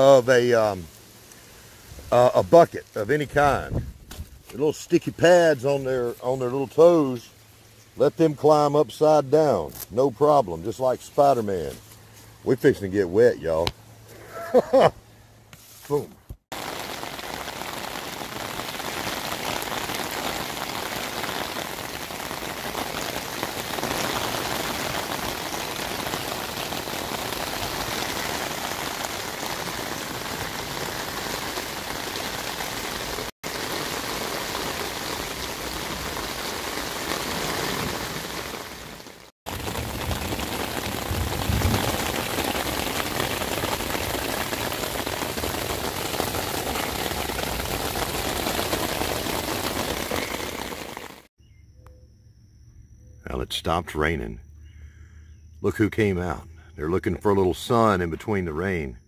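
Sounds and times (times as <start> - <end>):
rain on foliage: 0.0 - 9.3, 15.9 - 51.3.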